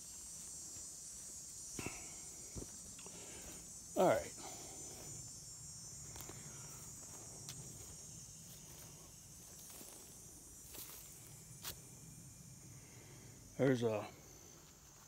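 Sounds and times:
footsteps on dirt trail: 0.0 - 3.6, 6.0 - 11.8
insect chorus: 0.0 - 15.0.

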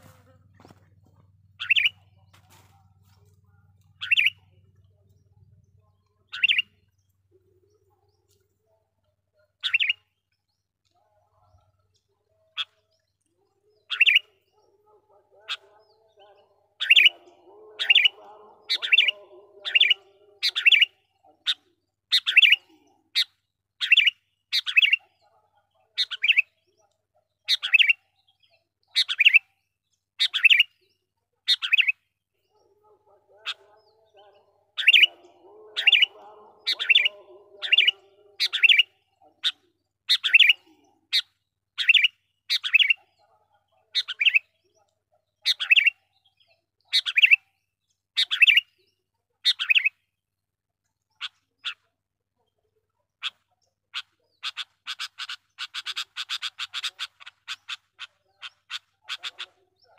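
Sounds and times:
bird giving sharp calls: 1.6 - 2.6, 3.9 - 4.6, 34.7 - 43.0, 53.2 - 59.8.

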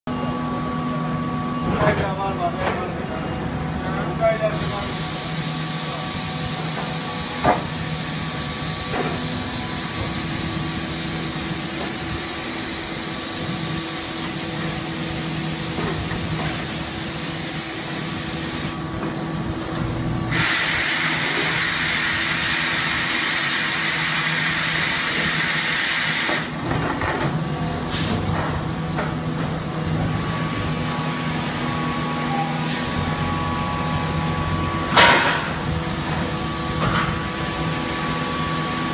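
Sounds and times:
loud rush of hiss: 4.3 - 19.6, 20.2 - 26.6
hydraulic press hissing: 4.4 - 19.6, 20.2 - 26.6.

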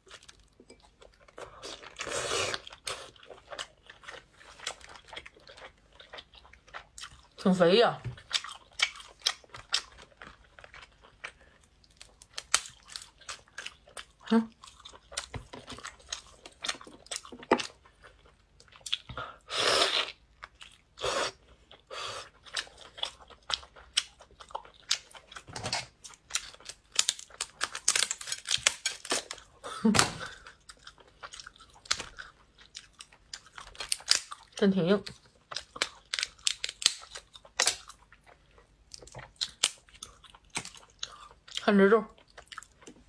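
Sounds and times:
chewing: 0.0 - 7.4, 8.2 - 19.4, 42.2 - 43.0
shell cracking and crackling: 12.0 - 13.4, 24.9 - 29.4, 33.4 - 34.4, 35.5 - 37.9, 39.4 - 41.1.

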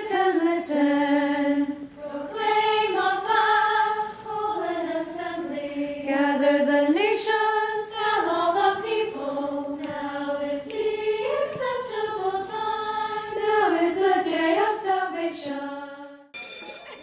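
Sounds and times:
choir singing held chords: 0.0 - 16.6.

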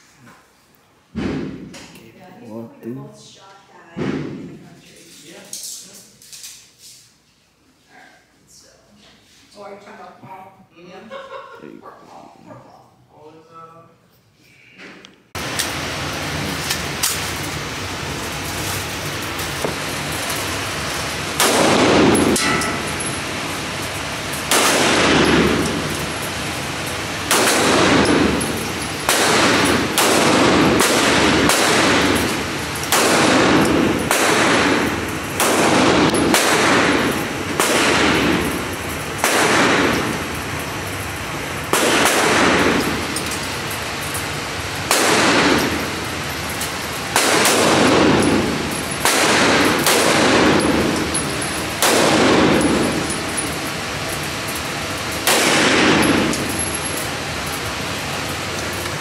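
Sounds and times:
gunshots with ringing echo: 21.3 - 40.4, 41.7 - 43.2, 44.9 - 46.1, 47.1 - 54.1, 55.2 - 57.0.

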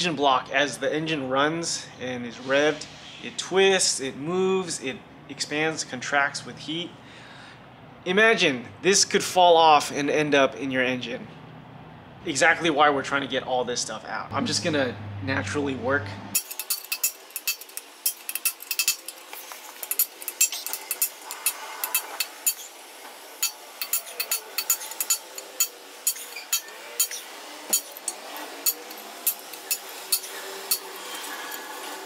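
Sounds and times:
hammer striking chisel on metal: 23.4 - 31.0.

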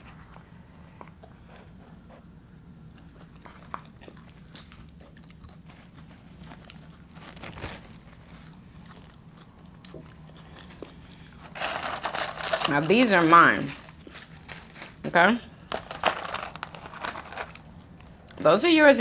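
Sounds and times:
low steady hum: 0.0 - 19.0
chips being crunched: 11.4 - 15.0, 15.6 - 18.1.

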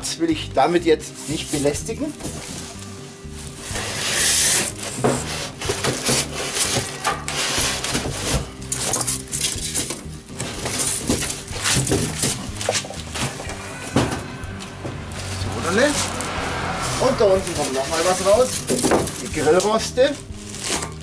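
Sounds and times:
polystyrene packing rubbing: 3.5 - 8.6, 20.3 - 21.0
plastic wrapping rustling: 3.5 - 13.4, 20.1 - 21.0.

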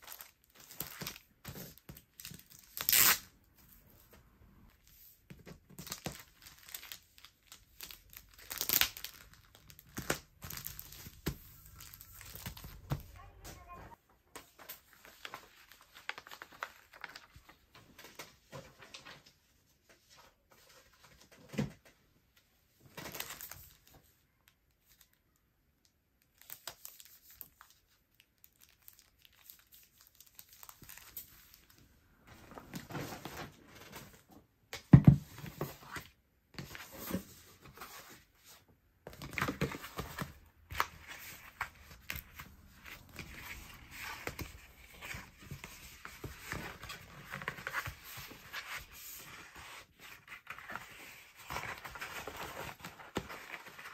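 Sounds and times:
plastic sheets crinkling: 4.8 - 13.8, 14.4 - 19.4, 26.3 - 34.3, 39.0 - 53.9.

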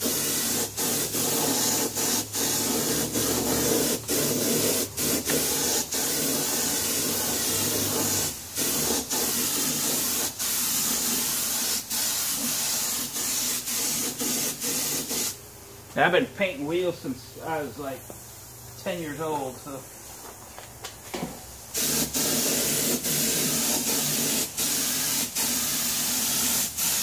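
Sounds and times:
spray gun hissing: 0.0 - 15.4, 21.7 - 27.0.

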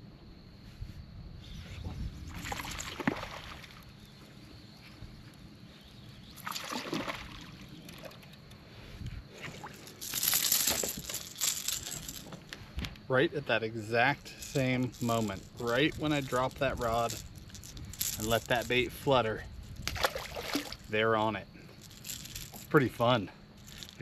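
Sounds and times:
fish splashing at water surface: 6.4 - 8.2, 19.9 - 20.8.

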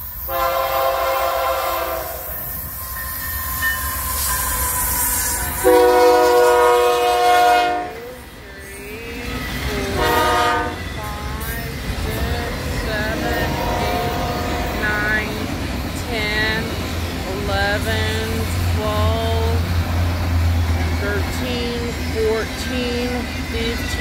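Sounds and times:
train rumbling past: 0.0 - 24.0
locomotive air horn blasts: 0.3 - 2.5, 4.8 - 8.2, 9.9 - 11.0, 13.4 - 14.8.

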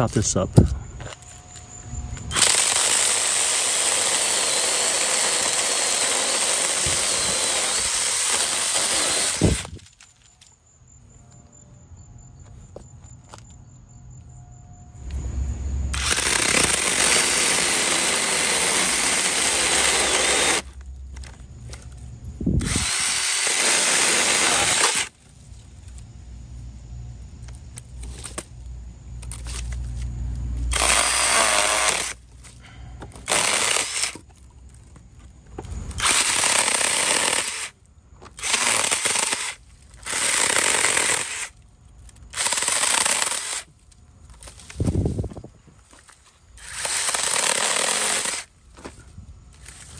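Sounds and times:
electric mini chainsaw cutting wood: 2.3 - 9.9, 15.9 - 20.8, 22.6 - 25.2, 30.7 - 32.2, 33.2 - 34.3, 35.9 - 41.6, 42.3 - 43.7, 46.6 - 48.5.

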